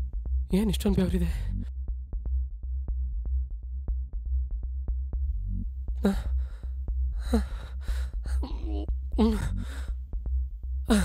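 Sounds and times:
man breathing heavily: 6.0 - 8.6, 9.2 - 10.1.

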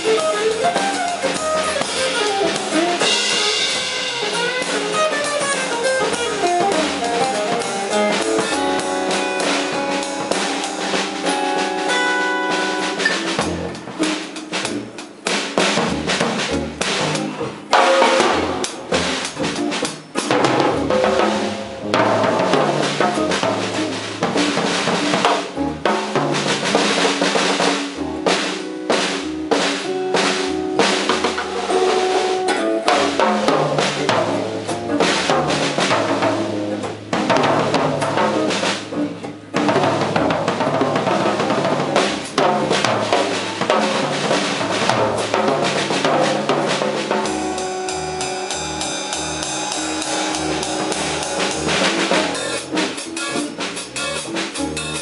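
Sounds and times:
jazz drum kit: 0.0 - 55.0
upright double bass: 0.0 - 55.0
ringing cymbals: 47.2 - 53.3.

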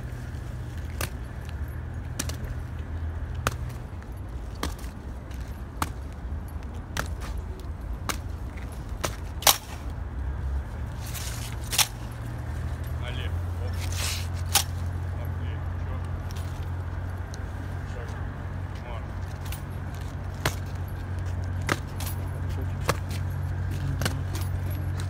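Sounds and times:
boots striking stone paving: 19.3 - 25.0.

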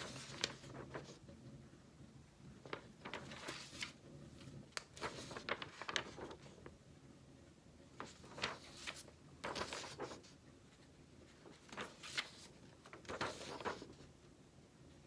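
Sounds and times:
paper rustling: 0.0 - 1.3, 2.5 - 6.8, 7.9 - 14.1.

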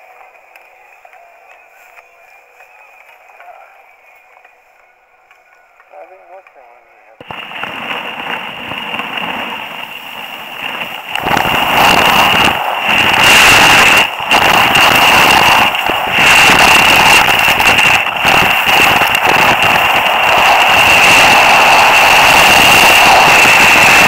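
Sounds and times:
skis scraping packed snow: 5.9 - 24.0
wind buffeting microphone: 7.2 - 24.0.

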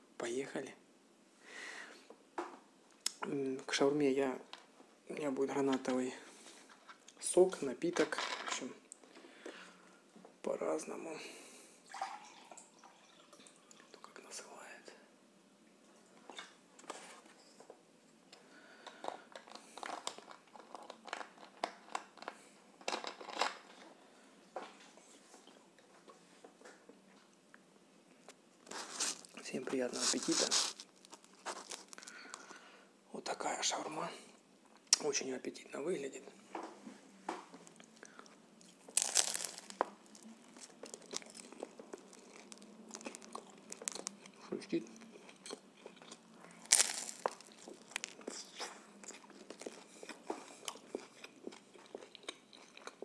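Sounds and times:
close-up chewing: 18.8 - 23.6, 30.0 - 32.6, 37.6 - 53.0
crunching bite of wrap: 30.0 - 32.5, 37.8 - 53.0.

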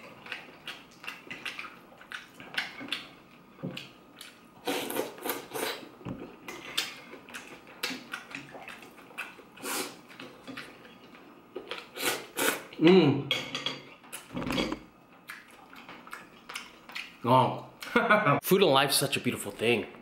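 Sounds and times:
chewing: 0.0 - 12.7, 15.2 - 17.2
slurping noodles: 4.6 - 5.9, 9.6 - 10.0, 11.8 - 12.7.

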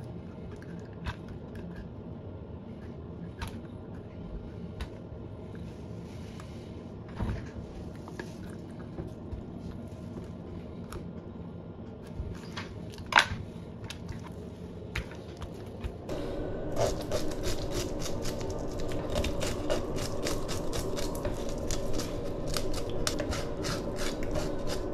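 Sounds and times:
knife scraping fish: 16.7 - 24.9.

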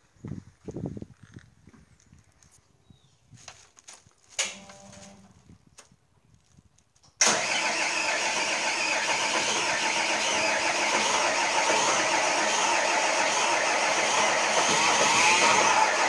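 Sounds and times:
diesel engine starting and running: 7.2 - 16.0.

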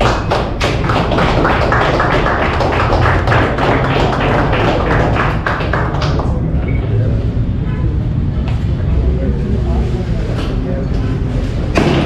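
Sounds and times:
group clapping in rhythm: 0.0 - 6.6
steady low hum: 0.0 - 12.0.

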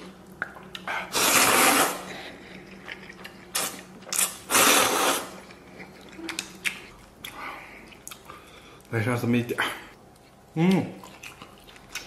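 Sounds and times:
man slurping noodles: 1.1 - 2.0, 4.5 - 5.4.

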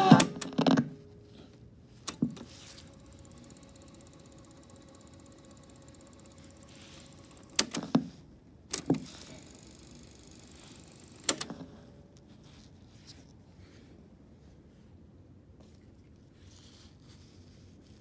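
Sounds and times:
cassette deck clicks and clunks: 7.4 - 9.2, 11.2 - 11.6.

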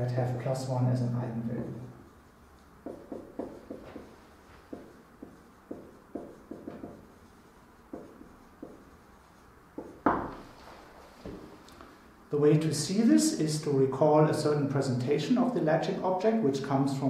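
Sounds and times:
writing taps on a board: 2.8 - 7.1, 7.9 - 8.9, 9.7 - 10.4.

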